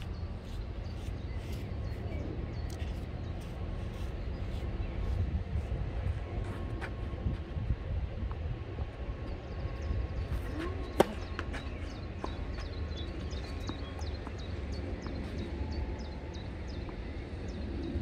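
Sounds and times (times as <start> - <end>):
racket hitting tennis ball: 10.9 - 11.8.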